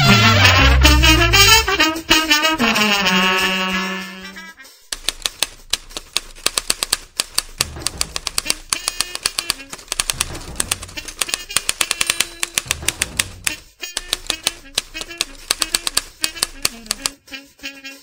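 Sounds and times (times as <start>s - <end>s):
typewriter keys clacking: 4.8s - 17.8s.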